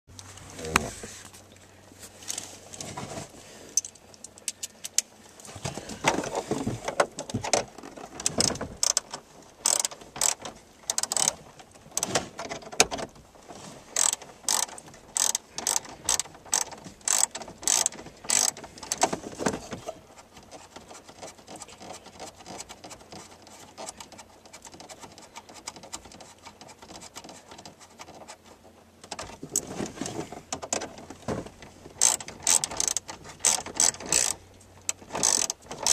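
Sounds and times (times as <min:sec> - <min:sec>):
rustling and knocks from handling: 0:00.2 - 0:03.4, 0:05.4 - 0:35.9
ratchet wrench clicking: 0:08.8 - 0:09.0, 0:09.6 - 0:11.4, 0:14.0 - 0:19.0, 0:32.0 - 0:35.9.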